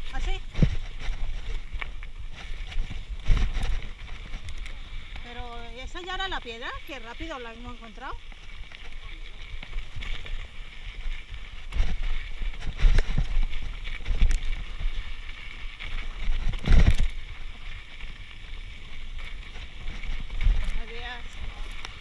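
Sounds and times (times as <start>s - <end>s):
tyres rolling on dirt: 0.0s - 22.0s
bike knocking over rocks: 0.1s - 22.0s.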